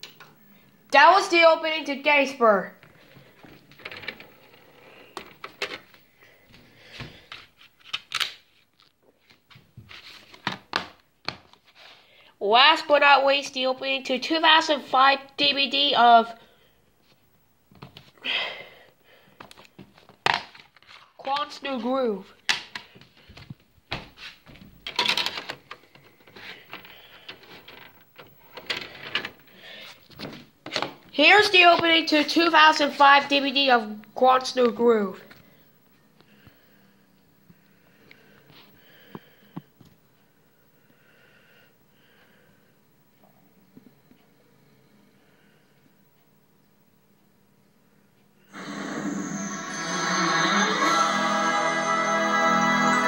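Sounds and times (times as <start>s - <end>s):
plastic disc cases clicking: 3.7s - 6.0s.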